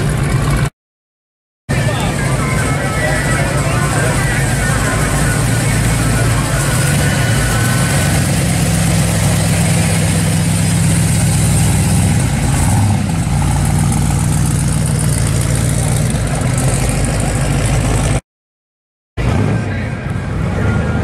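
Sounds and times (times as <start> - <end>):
car engine rolling past: 1.7 - 18.2.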